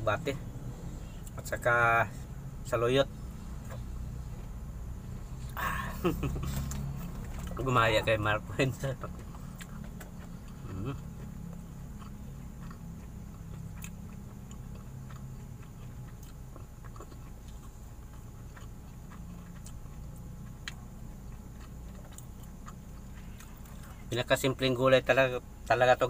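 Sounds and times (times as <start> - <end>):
steady low hum: 0.0 - 26.0
man chewing food: 0.4 - 24.4
small eating clicks: 5.3 - 26.0.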